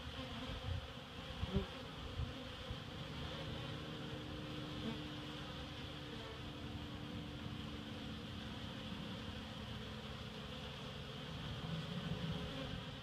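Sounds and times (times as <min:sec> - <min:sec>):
honeybees buzzing: 0:00.0 - 0:13.0.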